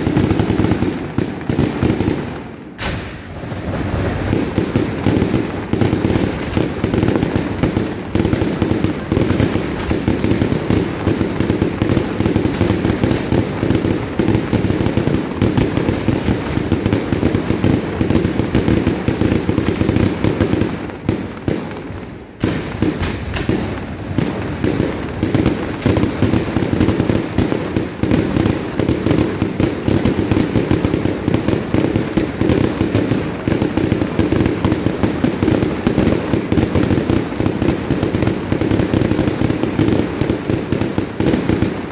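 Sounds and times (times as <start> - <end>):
fireworks bangs and crackling: 0.0 - 41.9.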